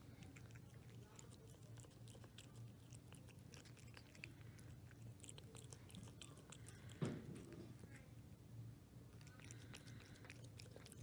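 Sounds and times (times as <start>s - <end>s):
cat chewing and licking: 0.0s - 11.0s.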